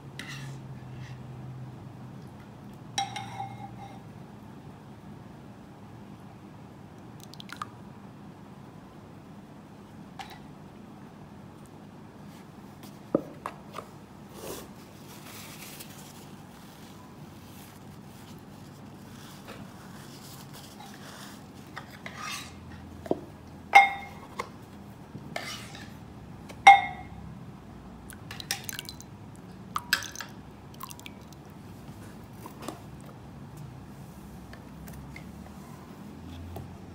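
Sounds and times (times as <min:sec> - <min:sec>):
dishes and cutlery clinking: 0:03.0 - 0:04.0, 0:23.8 - 0:24.4, 0:26.7 - 0:27.2.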